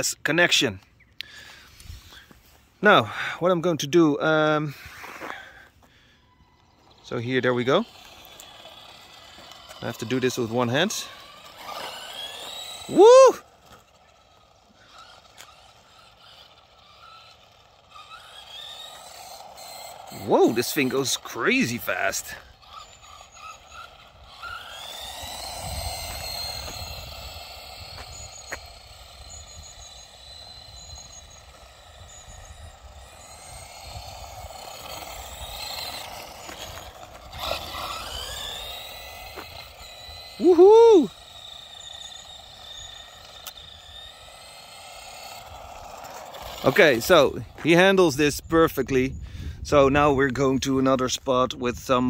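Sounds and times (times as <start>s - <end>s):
electric motor whine: 3.8s - 50.3s
man whooping: 12.8s - 13.6s, 40.4s - 41.2s.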